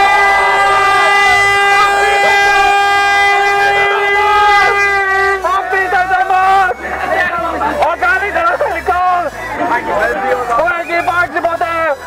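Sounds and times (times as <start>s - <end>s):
horn blast: 0.0s - 11.1s
crowd shouting and cheering: 0.0s - 12.0s.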